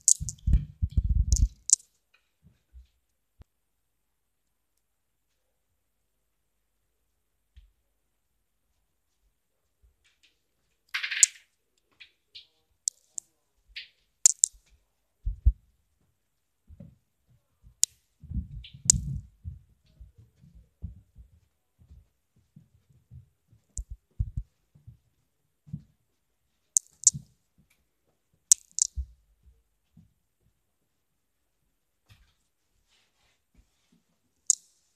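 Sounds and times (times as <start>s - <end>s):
sharp clicks: 0.0s - 0.5s, 1.3s - 1.8s, 12.9s - 13.2s, 13.8s - 14.6s, 18.8s - 19.1s, 26.8s - 27.2s, 28.5s - 29.0s.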